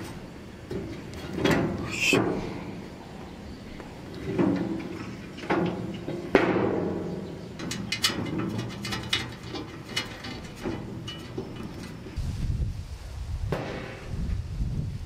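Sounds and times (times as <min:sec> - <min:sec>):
knocks on steel grill body: 0:05.6 - 0:07.2.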